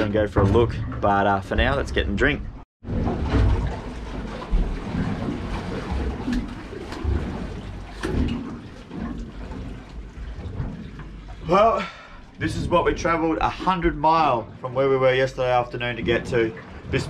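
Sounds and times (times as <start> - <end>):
water slapping against boat hull: 0.0 - 17.0
wind buffeting microphone: 12.4 - 14.0.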